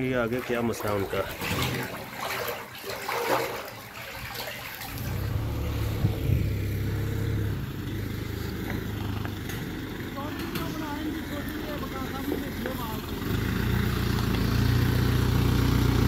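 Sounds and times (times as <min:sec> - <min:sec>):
sewage water rushing: 0:00.0 - 0:16.0
vehicle engine rumbling: 0:04.8 - 0:16.0.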